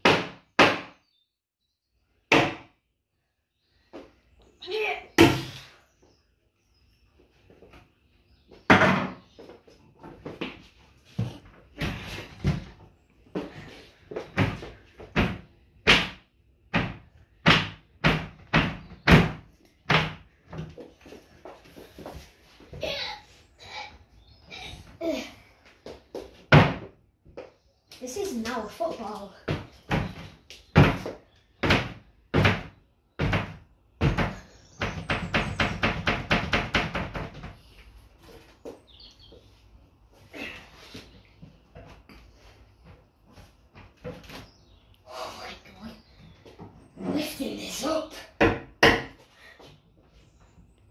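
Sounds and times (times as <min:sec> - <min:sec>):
heavy bangs on cupboards: 0:14.3 - 0:20.7, 0:26.5 - 0:26.9, 0:29.5 - 0:37.6, 0:48.4 - 0:49.2.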